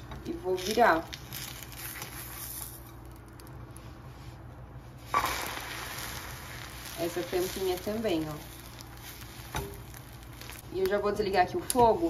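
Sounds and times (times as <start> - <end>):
egg frying in butter: 0.2 - 3.8, 5.0 - 12.0.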